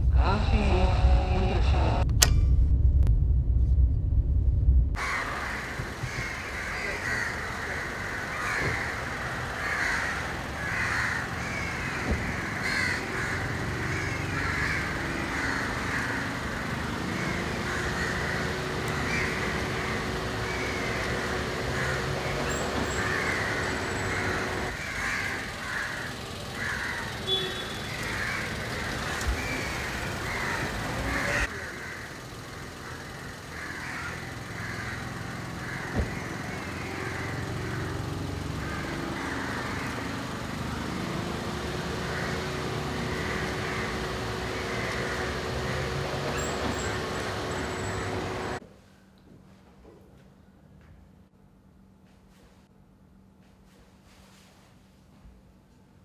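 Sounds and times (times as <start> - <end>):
car engine running: 0.0 - 48.6
street hum: 0.0 - 48.7
crows cawing: 5.0 - 48.6.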